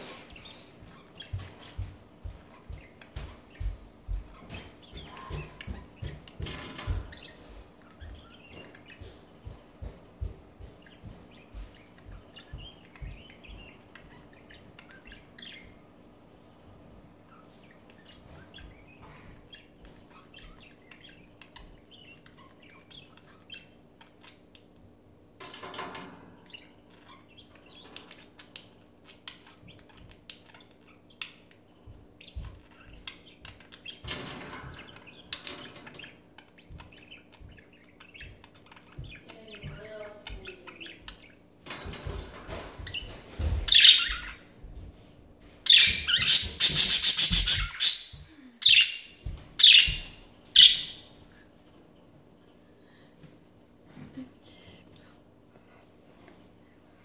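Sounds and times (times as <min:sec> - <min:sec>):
budgerigars chirping: 0:00.3 - 0:09.6, 0:10.6 - 0:15.8, 0:17.3 - 0:24.7, 0:26.4 - 0:41.4, 0:42.8 - 0:44.4, 0:45.7 - 0:51.1.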